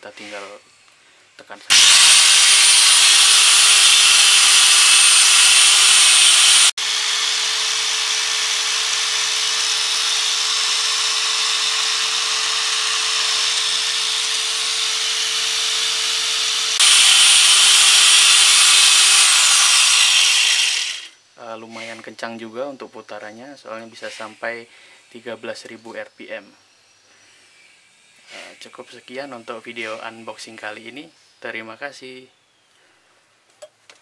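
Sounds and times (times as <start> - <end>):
angle grinder whining: 1.7 - 21.1
grinder motor winding down: 1.7 - 21.1.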